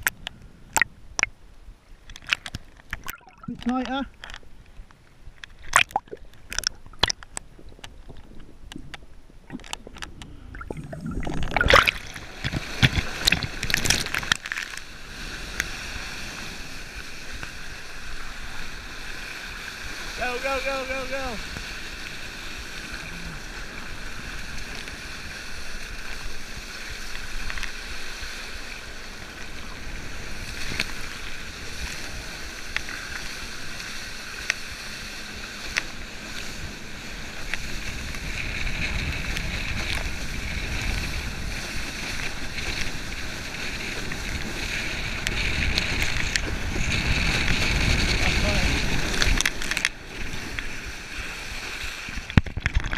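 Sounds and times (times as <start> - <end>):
water rushing and spray: 9.3 - 52.9
wind on microphone: 15.2 - 52.9.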